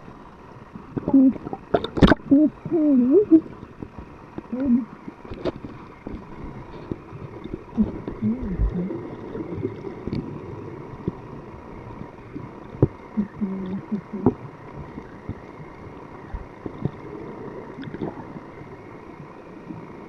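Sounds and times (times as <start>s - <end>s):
muffled wavering low tones: 0.0s - 20.0s
sharp clicks and crackles: 9.6s - 10.3s.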